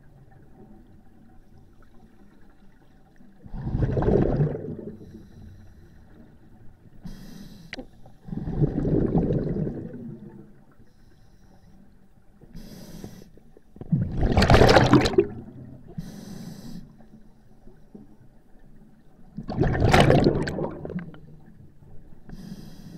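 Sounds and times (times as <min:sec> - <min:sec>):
exhaled bubbles rushing: 0:03.4 - 0:05.2, 0:08.2 - 0:10.6, 0:13.8 - 0:15.8, 0:19.3 - 0:21.6
regulator hissing inhale: 0:05.0 - 0:06.3, 0:07.0 - 0:08.3, 0:10.8 - 0:11.9, 0:12.5 - 0:13.4, 0:16.0 - 0:17.5, 0:22.3 - 0:22.9.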